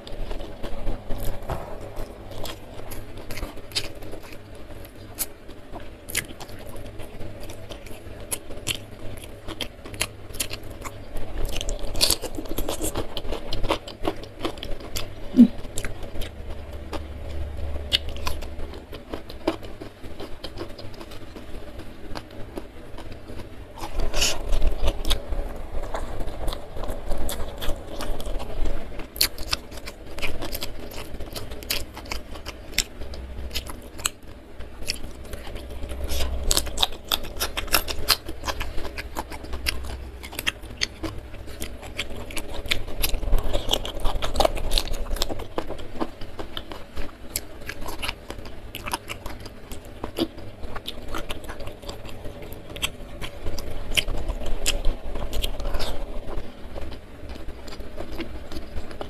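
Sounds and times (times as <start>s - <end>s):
crunchy chewing: 0.0s - 59.0s.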